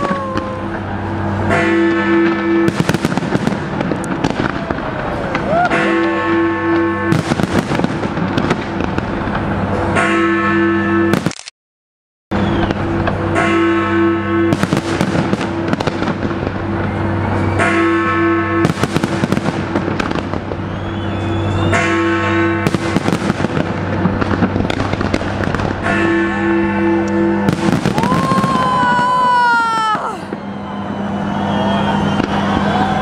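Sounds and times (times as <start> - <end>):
fireworks bursting and crackling: 0.0 - 1.6, 2.2 - 9.9, 14.5 - 17.6, 18.6 - 21.9, 22.6 - 26.1, 27.4 - 33.0.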